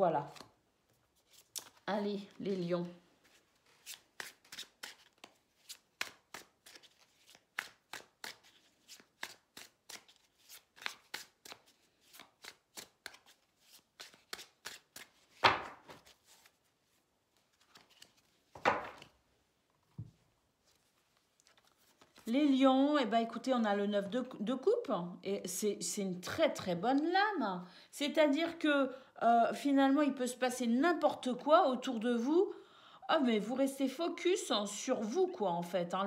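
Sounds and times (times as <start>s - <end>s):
cards being shuffled: 0.3s - 1.9s, 3.2s - 16.7s, 17.3s - 19.2s, 19.9s - 22.3s
loud card slaps: 15.4s - 16.0s, 18.6s - 19.1s.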